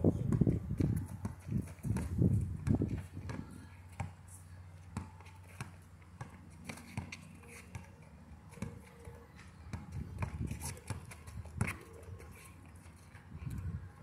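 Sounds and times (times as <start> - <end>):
basketball bouncing on asphalt: 0.2 - 4.2, 4.8 - 14.0
players' footsteps: 5.0 - 14.0.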